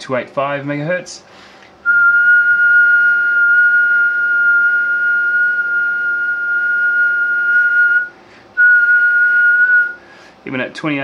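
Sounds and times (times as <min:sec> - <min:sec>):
high whistled test tone: 0:01.9 - 0:10.0.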